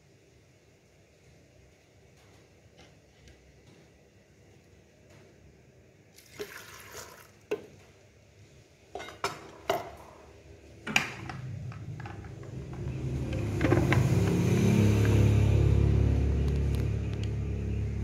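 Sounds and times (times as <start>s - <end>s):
containers and utensils clinking: 10.9s - 15.3s.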